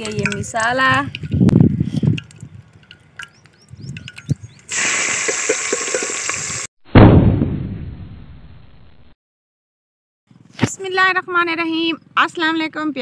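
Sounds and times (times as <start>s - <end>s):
spices sizzling in hot oil: 4.3s - 6.7s
loud low boom: 6.9s - 9.1s.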